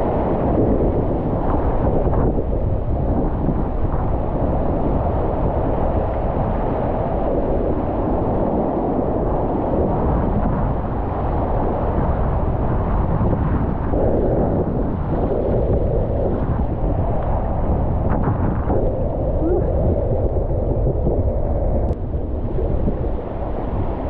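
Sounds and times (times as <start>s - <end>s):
wind buffeting microphone: 0.0s - 24.0s.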